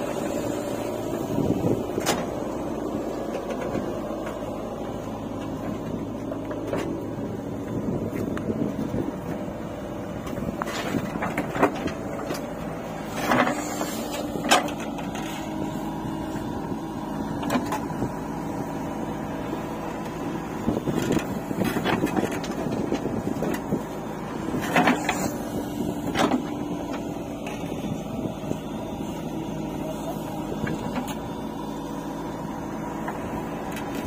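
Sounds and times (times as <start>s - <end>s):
diesel engine running: 0.0s - 34.0s
backhoe bucket clanking: 20.8s - 28.1s.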